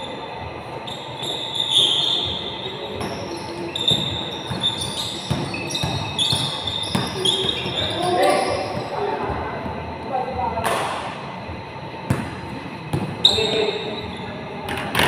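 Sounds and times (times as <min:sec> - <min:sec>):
sneakers squeaking on court: 0:00.0 - 0:09.1, 0:12.1 - 0:15.0
basketball bouncing: 0:03.8 - 0:08.9, 0:12.1 - 0:13.2.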